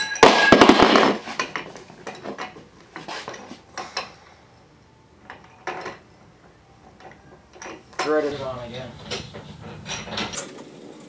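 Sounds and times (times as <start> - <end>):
metal tool clinking: 0.0 - 4.2, 6.9 - 10.5.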